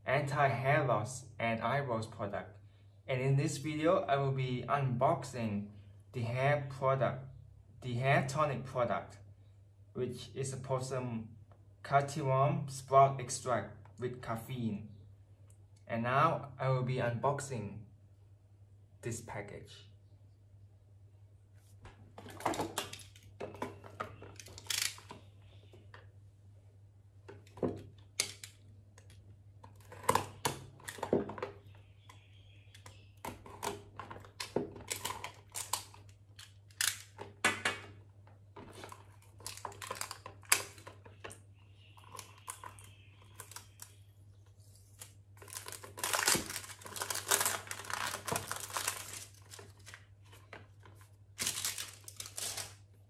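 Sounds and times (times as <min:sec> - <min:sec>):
plastic wrap crinkling and tearing: 0:38.8 - 0:40.9, 0:45.4 - 0:50.1, 0:51.4 - 0:52.8.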